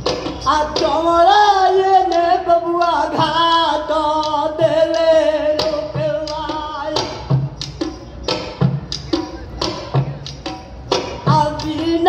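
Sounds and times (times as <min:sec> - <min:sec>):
man singing over loudspeakers: 0:00.4 - 0:07.3, 0:11.3 - 0:12.0.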